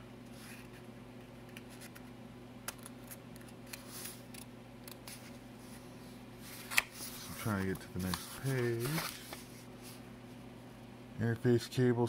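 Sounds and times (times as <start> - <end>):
low steady hum: 0.0 - 12.0
paper pages rustling: 6.4 - 10.0.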